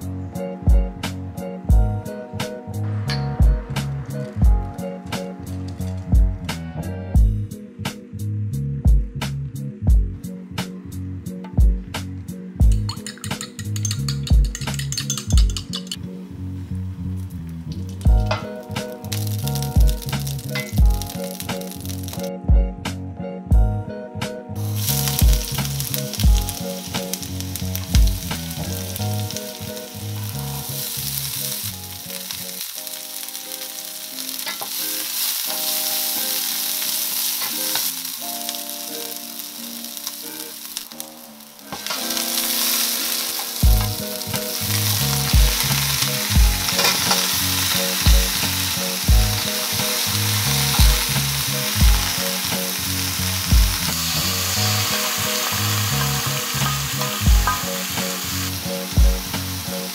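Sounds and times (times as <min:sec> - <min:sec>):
background music with soft beat: 0:00.0 - 0:16.3, 0:17.7 - 0:59.9
oil sizzling in frying pan: 0:12.6 - 0:16.0, 0:17.7 - 0:22.3, 0:24.6 - 0:59.9.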